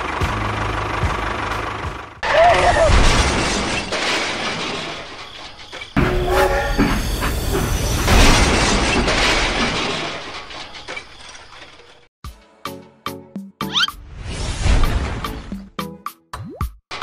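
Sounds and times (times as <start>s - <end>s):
train rushing rumble: 0.0s - 11.2s
train horn tone: 6.0s - 7.3s.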